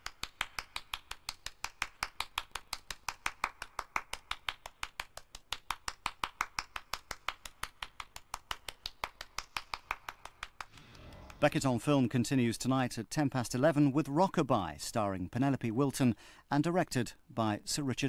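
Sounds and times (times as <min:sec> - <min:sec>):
hands clapping quickly: 0:00.0 - 0:11.6.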